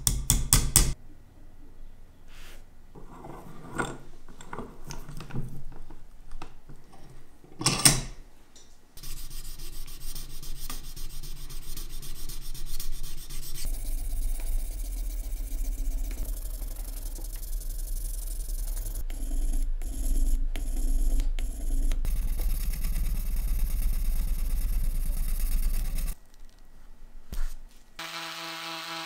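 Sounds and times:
metal scrape: 2.4 - 5.1
sandpaper rasping on metal: 9.0 - 19.0.

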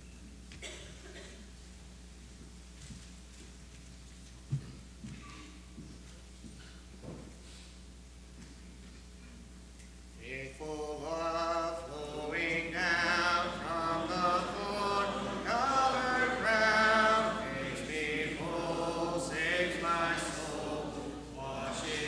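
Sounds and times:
congregation singing a hymn: 10.2 - 22.0.

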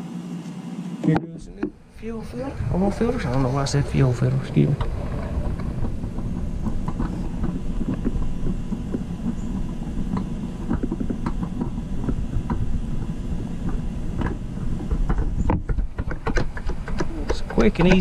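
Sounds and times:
low rumble: 1.8 - 16.9
rag rubbing and knocking: 2.8 - 18.0.

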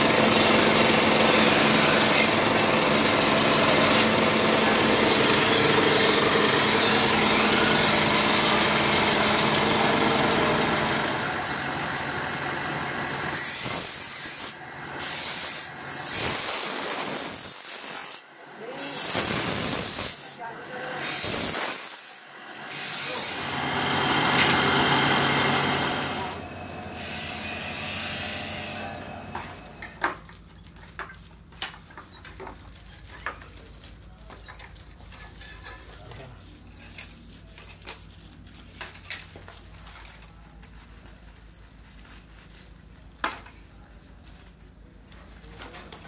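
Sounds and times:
grinding wheel on steel blade: 0.0 - 11.2, 13.3 - 16.2, 17.1 - 29.8.

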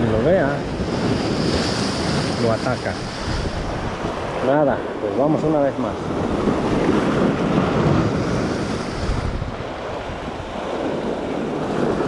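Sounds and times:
surf breaking over rocks: 0.0 - 12.0
wind buffeting microphone: 0.0 - 12.0.

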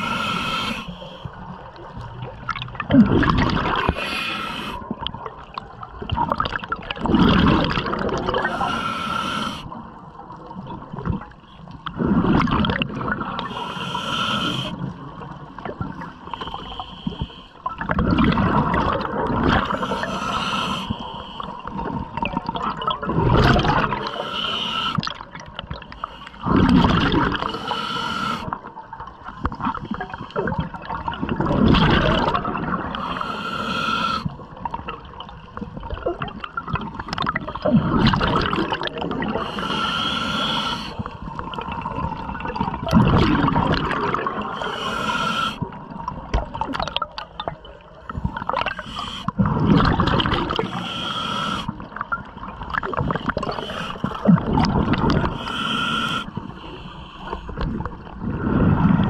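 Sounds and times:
regulator hissing inhale: 0.0 - 1.4, 3.8 - 4.8, 8.5 - 9.8, 13.4 - 14.9, 16.2 - 17.6, 19.6 - 21.7, 24.0 - 25.0, 25.9 - 26.4, 27.4 - 28.6, 32.9 - 34.4, 39.3 - 41.2, 44.5 - 45.7, 48.7 - 49.4, 50.6 - 51.8, 53.4 - 54.2, 55.2 - 57.6
exhaled air bubbling: 0.0 - 59.0.

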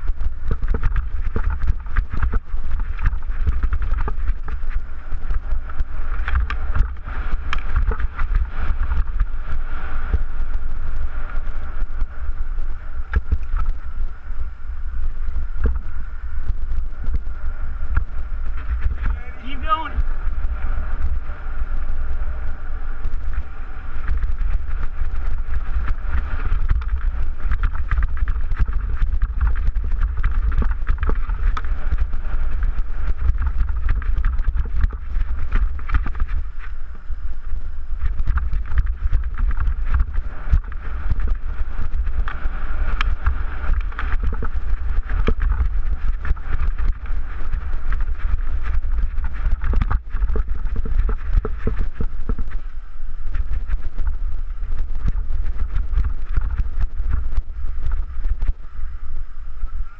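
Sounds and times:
mountain bike rattling over rocks: 0.0 - 14.1, 15.0 - 58.5
wind buffeting microphone: 0.0 - 59.9.

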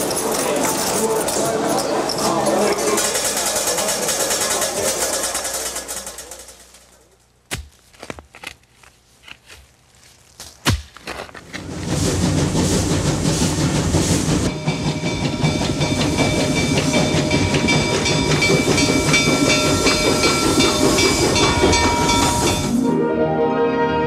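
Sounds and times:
steam locomotive chuffing: 0.0 - 7.0, 11.5 - 22.9.

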